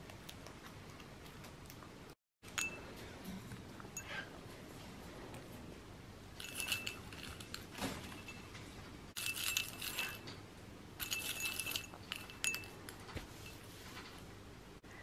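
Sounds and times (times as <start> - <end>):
straws rattling against glass: 6.4 - 10.4, 11.0 - 14.1.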